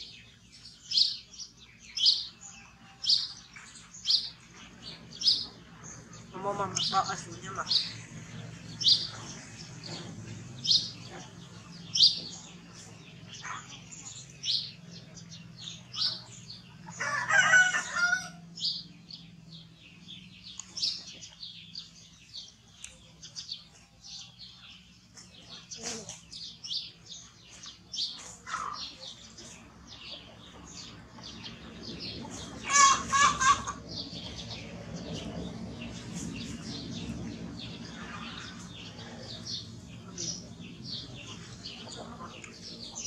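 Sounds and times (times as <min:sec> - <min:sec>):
small birds chirping: 0:00.0 - 0:43.0
louder bird calls: 0:31.4 - 0:35.3.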